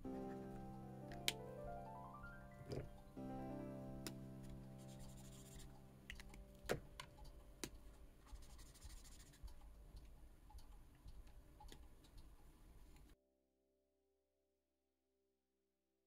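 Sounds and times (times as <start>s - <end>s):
marker scratching on paper: 4.8s - 5.7s, 8.3s - 9.5s.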